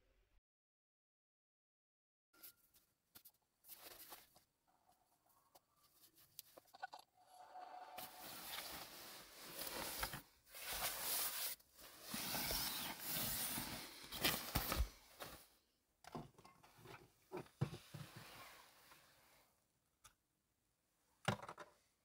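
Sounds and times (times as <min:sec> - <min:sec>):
bedding rustling: 0:08.0 - 0:15.6.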